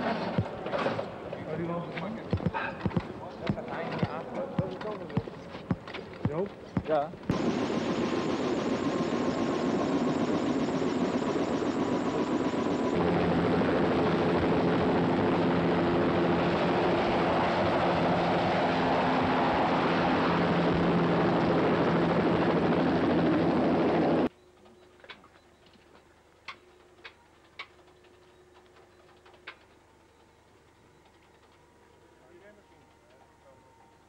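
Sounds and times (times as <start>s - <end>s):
helicopter engine and rotor: 0.0s - 6.2s, 6.8s - 24.3s.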